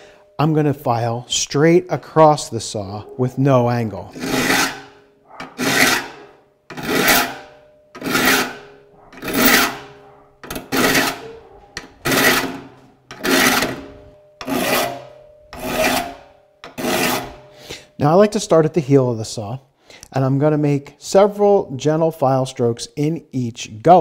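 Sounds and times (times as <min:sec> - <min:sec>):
file rasping on saw teeth: 0:04.1 - 0:17.5.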